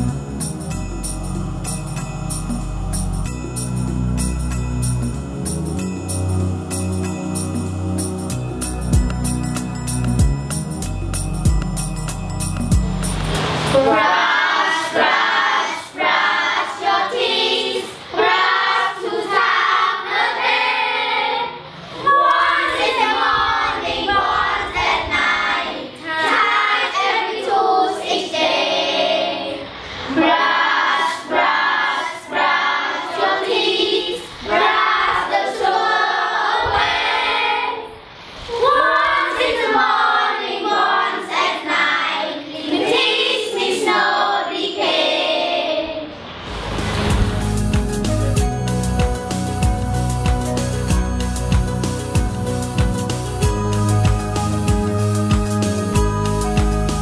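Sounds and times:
children singing: 13.7 - 46.3.

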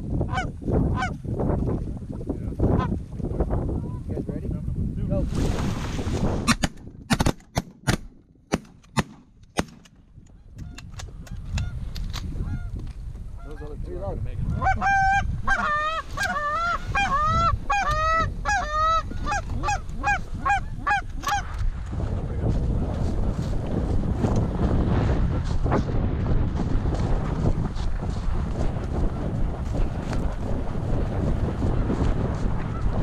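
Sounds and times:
goose honks and clucks: 0.3 - 1.2, 14.5 - 21.5
sharp cracks: 6.5 - 10.0.

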